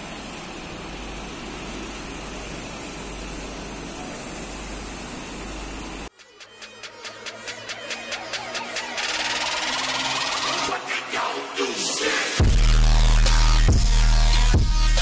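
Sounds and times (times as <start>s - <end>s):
rhythmic electronic music: 6.1s - 15.0s.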